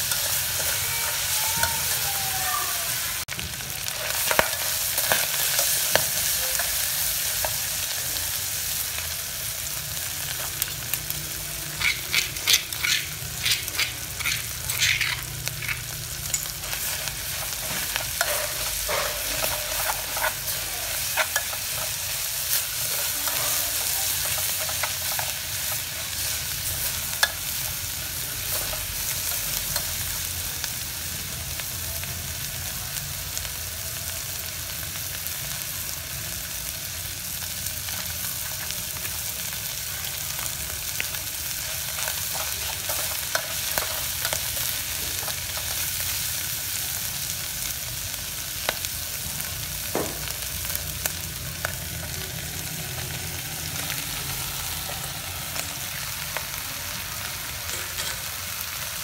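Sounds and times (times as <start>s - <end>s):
food sizzling in a pot: 0.0s - 59.0s
utensil stirring food: 10.2s - 30.1s, 40.4s - 46.8s.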